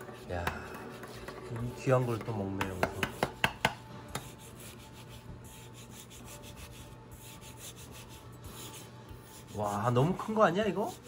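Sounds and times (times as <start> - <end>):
knife tapping cutting board: 2.2 - 4.3.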